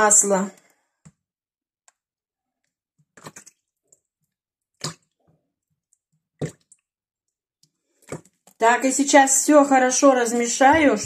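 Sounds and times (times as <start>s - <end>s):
oil splashing into liquid: 3.0s - 6.9s.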